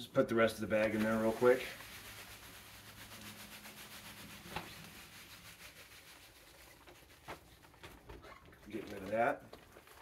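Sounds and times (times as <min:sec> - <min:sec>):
granular hiss of pouring: 0:00.9 - 0:07.8.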